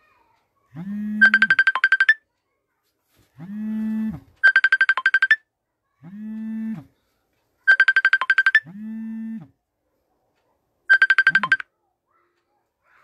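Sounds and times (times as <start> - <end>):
electronic ringtone tune: 0.8 - 2.2, 3.6 - 5.4, 7.7 - 9.5, 10.9 - 11.6.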